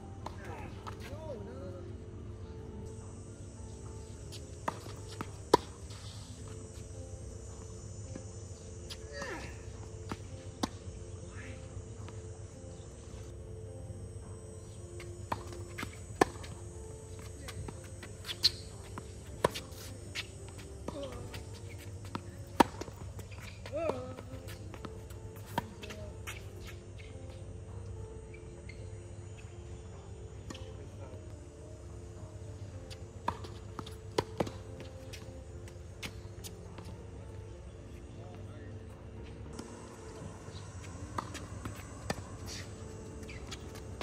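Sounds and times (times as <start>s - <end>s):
steady low hum: 0.0s - 44.0s
tennis ball bounces: 4.6s - 6.0s, 15.0s - 26.8s, 33.2s - 36.2s, 39.5s - 44.0s.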